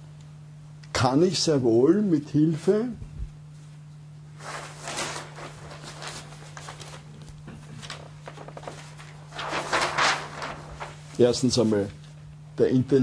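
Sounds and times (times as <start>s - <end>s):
paper sheets rustling: 4.4s - 12.2s.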